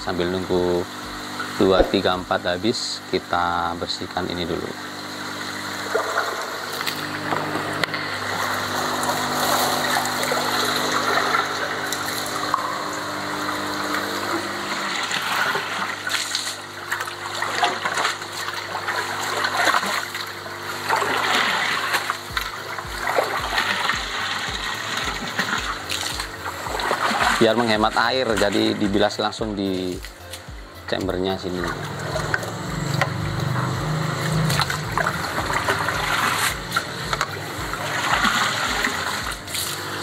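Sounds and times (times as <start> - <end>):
low hum: 0.0 - 2.6, 20.9 - 40.0
water pouring: 5.4 - 30.4, 31.1 - 40.0
splashing and dripping: 15.0 - 29.0, 31.6 - 39.9.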